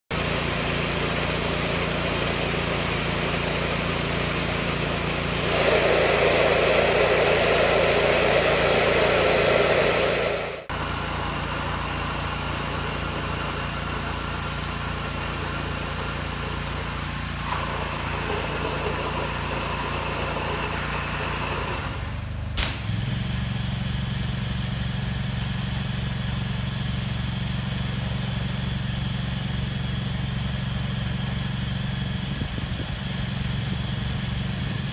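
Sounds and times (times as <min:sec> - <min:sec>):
pressure washer engine running: 0:00.0 - 0:34.9
high-pressure water jet hissing: 0:00.1 - 0:22.9.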